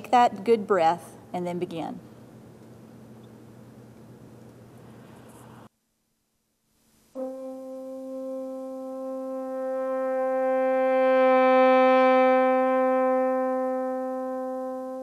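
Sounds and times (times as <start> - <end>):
french horn long note: 7.2 - 15.0.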